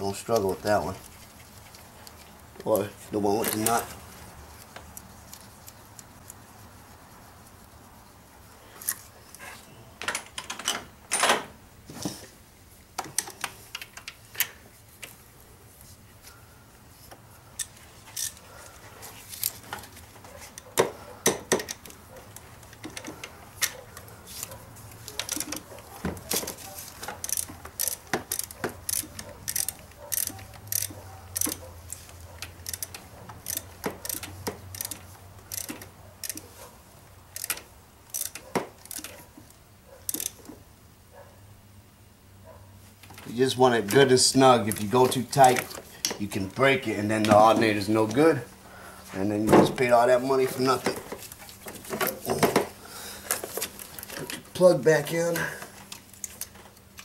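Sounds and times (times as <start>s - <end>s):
ratchet wrench clicking: 27.2s - 31.6s, 32.6s - 36.4s, 37.3s - 39.1s, 40.1s - 40.4s.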